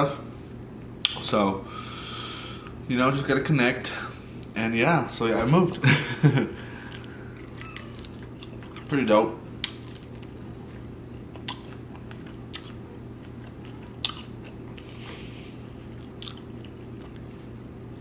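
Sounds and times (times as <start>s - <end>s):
chewing and biting food: 11.2s - 17.4s.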